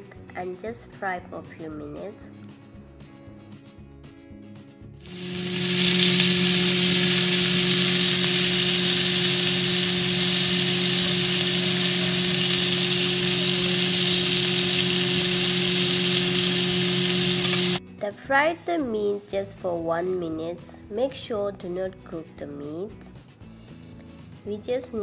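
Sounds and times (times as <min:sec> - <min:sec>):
meat sizzling in hot oil: 0:05.0 - 0:17.8
low hum: 0:05.1 - 0:17.8.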